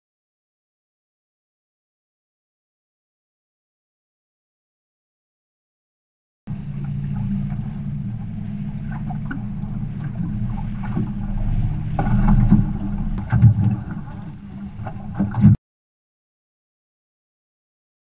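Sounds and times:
water lapping against metal boat: 0:06.5 - 0:15.6
wind rumbling on microphone: 0:06.5 - 0:15.6.

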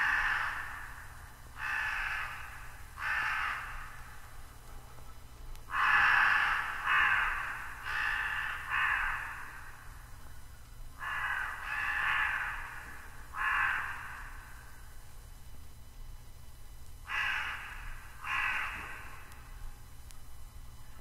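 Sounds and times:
crows cawing: 0:00.0 - 0:04.3, 0:05.7 - 0:10.0, 0:11.0 - 0:14.8, 0:17.0 - 0:19.4.

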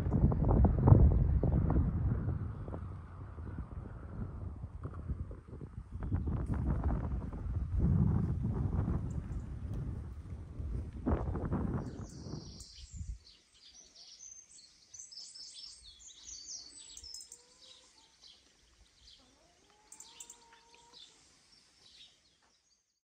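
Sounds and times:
wind rumble on microphone: 0:00.0 - 0:13.4
songbirds chirping: 0:09.0 - 0:23.0.

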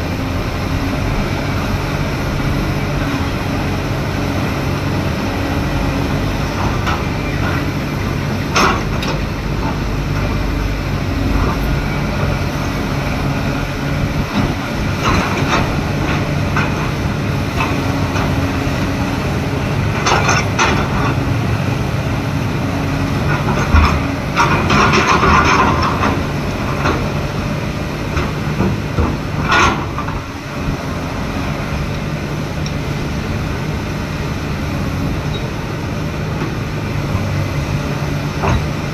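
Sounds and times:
excavator diesel engine running: 0:00.0 - 0:38.9.

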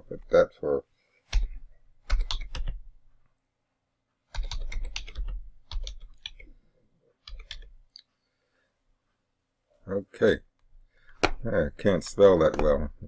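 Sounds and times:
keystrokes on computer keyboard: 0:01.3 - 0:02.8, 0:04.3 - 0:06.5, 0:07.2 - 0:07.8.

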